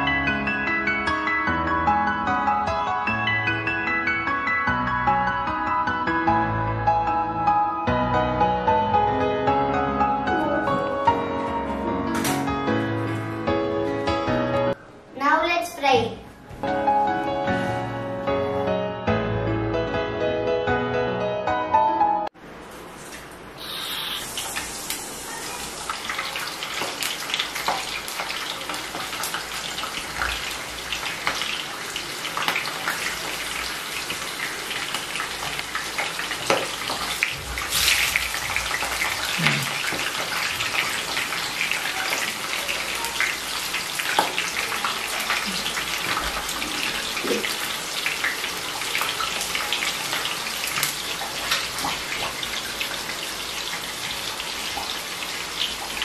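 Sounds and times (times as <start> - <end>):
hot oil sizzling and popping: 23.0 - 56.0.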